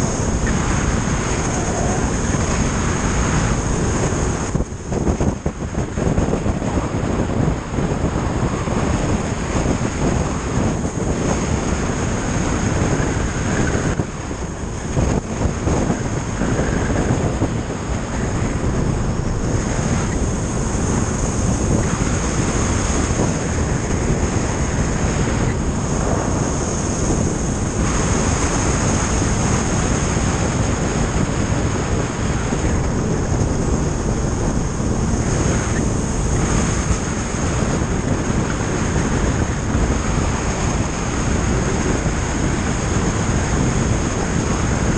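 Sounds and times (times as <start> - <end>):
motorcycle engine: 0.0 - 30.5
wind buffeting camera: 0.0 - 44.9.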